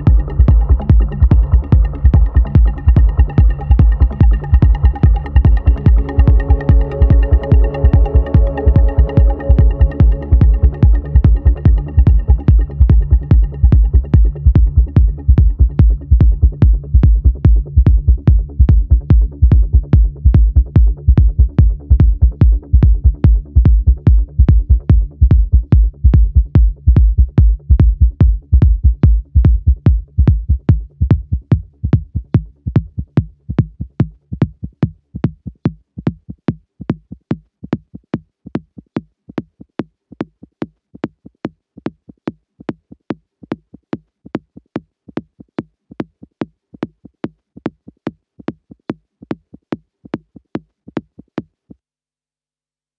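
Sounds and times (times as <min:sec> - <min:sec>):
faint low tone: 0:00.0 - 0:18.4
drum-machine click pattern: 0:00.0 - 0:28.0
techno kick and bass: 0:00.0 - 0:36.2.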